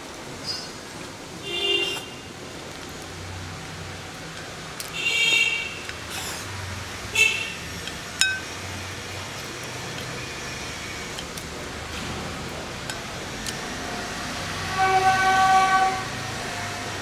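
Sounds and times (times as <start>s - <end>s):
high ringing honks: 14.6s - 16.2s.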